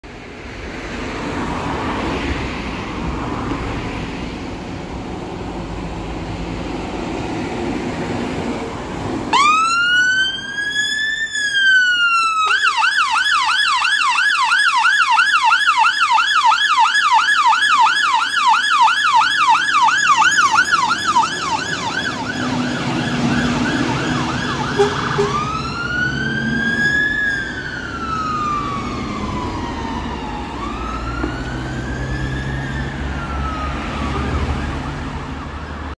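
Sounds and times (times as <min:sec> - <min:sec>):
road traffic noise: 0:00.0 - 0:35.9
truck engine rumble: 0:02.4 - 0:13.4, 0:16.9 - 0:35.9
fire engine siren wailing: 0:08.0 - 0:35.9
siren yelp: 0:09.3 - 0:35.9.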